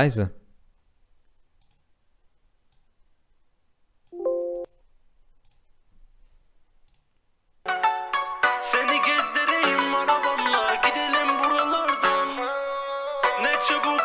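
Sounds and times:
keyboard melody: 4.2s - 4.7s, 7.7s - 14.0s.

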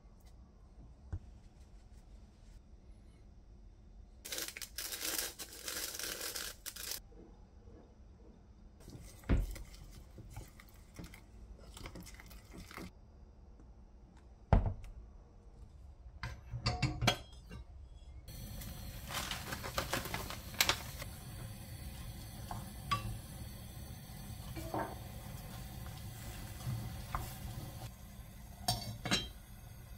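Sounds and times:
packaging crinkling: 4.3s - 7.0s, 18.4s - 21.1s.

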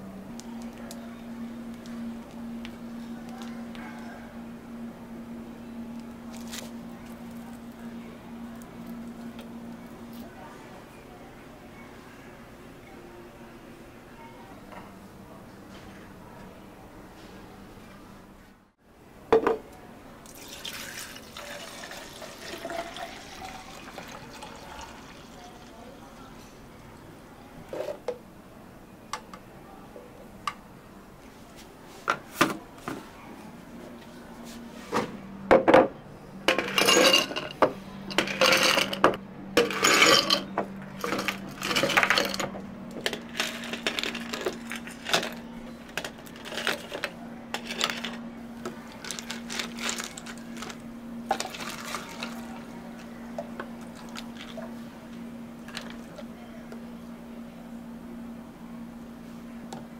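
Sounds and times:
low machine hum: 0.0s - 32.0s, 32.6s - 59.9s
cups and utensils clinking: 36.5s - 48.2s, 49.0s - 52.6s.

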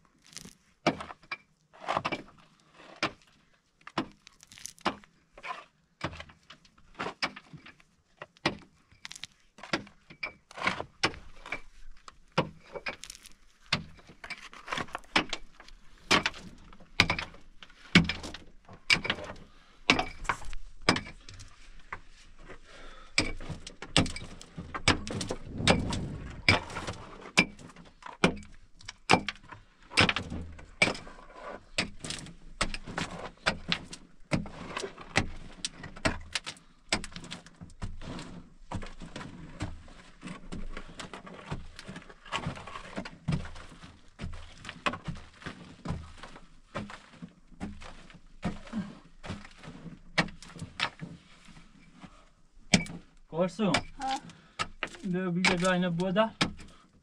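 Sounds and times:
low rumble: 25.0s - 27.3s.

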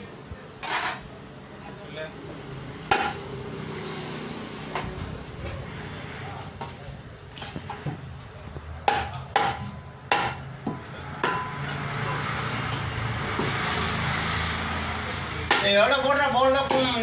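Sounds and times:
steady noisy background: 0.0s - 17.0s
cleaver chopping on wooden block: 8.9s - 10.4s.

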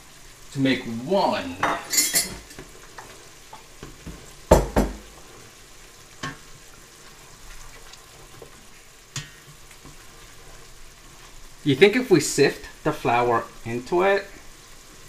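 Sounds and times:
faint steady hiss: 0.0s - 15.0s
spoon knocking against pot: 4.5s - 5.1s
spoon stirring water in a pot: 7.2s - 11.4s.

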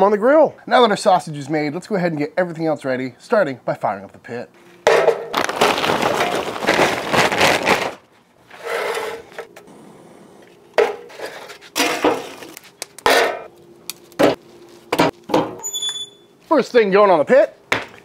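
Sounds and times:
charcoal clattering into metal starter: 10.8s - 13.5s.

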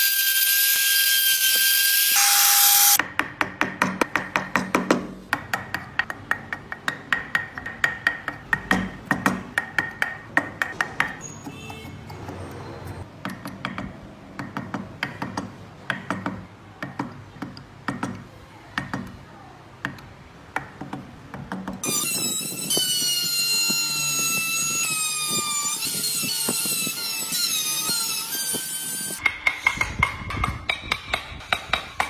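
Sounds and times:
electric rotary tool whine: 0.0s - 3.0s, 21.8s - 29.2s.

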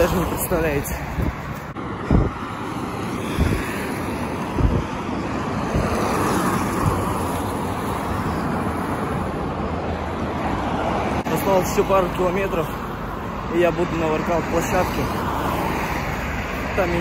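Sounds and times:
highway traffic rushing past: 0.0s - 17.0s
wind on microphone: 0.9s - 9.6s.

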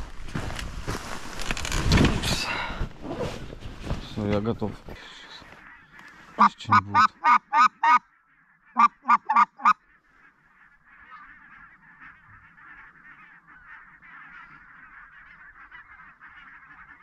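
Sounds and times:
flock of geese calling: 5.0s - 17.0s
goose call honks: 5.7s - 9.8s.

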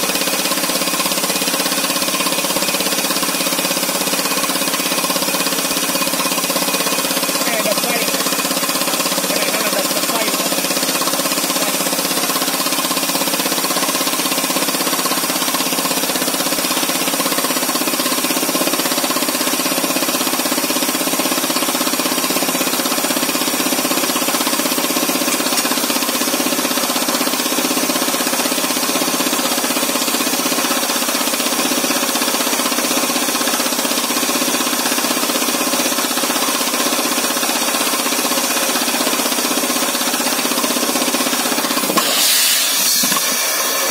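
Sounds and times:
pneumatic rock drill hammering: 0.0s - 43.9s
exhaust air hissing: 40.0s - 43.9s.

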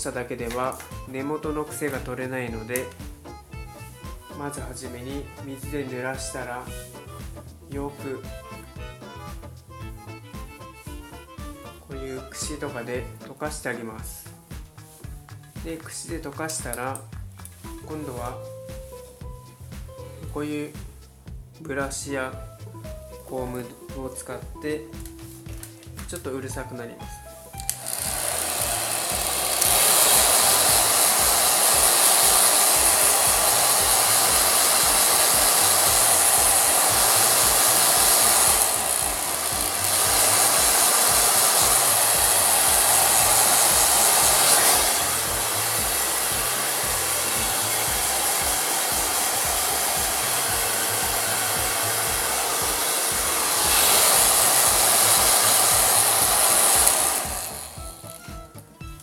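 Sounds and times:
hair dryer blowing: 27.6s - 58.3s.

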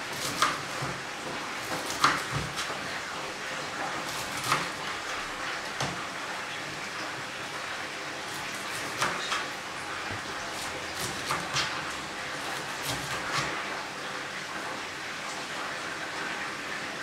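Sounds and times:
knife chopping on plastic board: 0.0s - 2.8s, 4.1s - 4.9s, 5.7s - 6.0s, 8.4s - 11.8s, 12.4s - 13.6s.

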